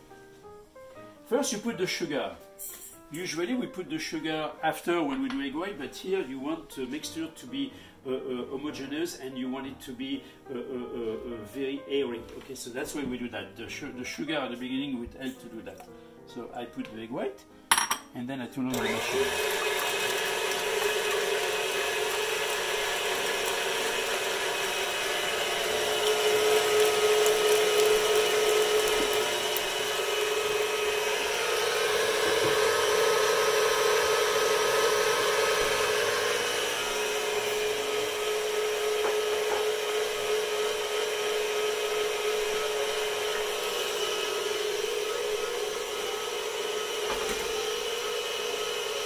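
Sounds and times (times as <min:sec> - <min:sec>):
stand mixer whipping: 0:18.7 - 0:49.0.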